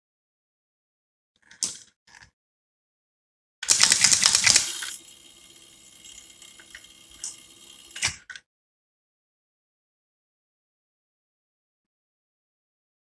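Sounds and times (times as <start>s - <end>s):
relay clicks: 3.6s - 8.4s.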